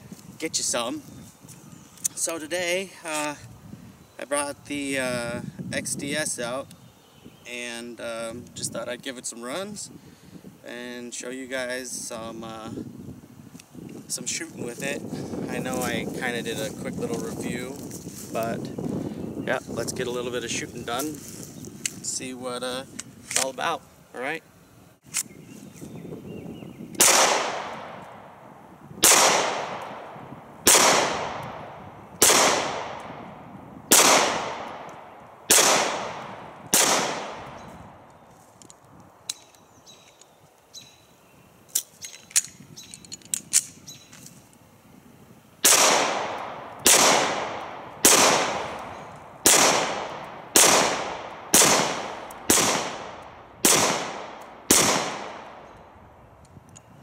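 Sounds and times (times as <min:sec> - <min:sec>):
pistol shots echoing: 0:27.0 - 0:28.2, 0:29.0 - 0:33.3, 0:33.9 - 0:37.6, 0:45.6 - 0:55.7.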